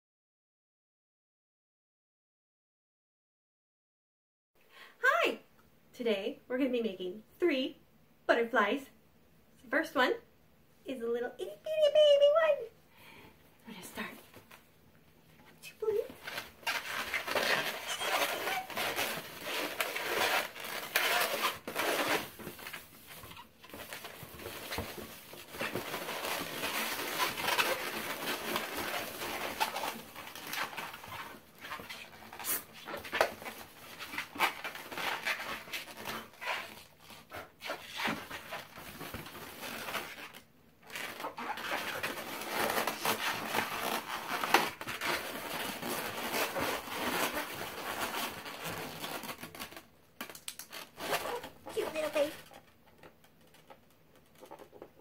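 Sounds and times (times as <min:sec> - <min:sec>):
balloons squeaking and rubbing: 0:15.7 - 0:52.7.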